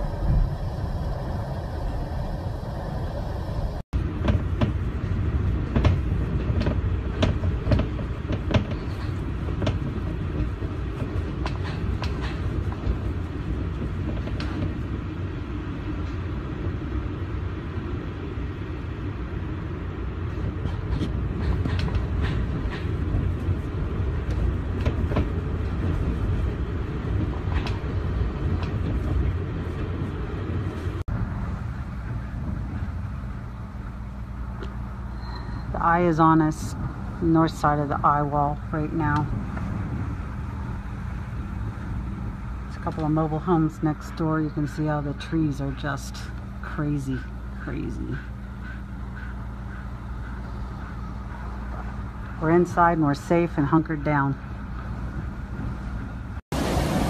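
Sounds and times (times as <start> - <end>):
driving rain: 0.0 - 15.5, 56.5 - 57.0
wind buffeting microphone: 0.0 - 57.0
sharp ticks and knocks: 5.6 - 13.0, 20.6 - 23.1.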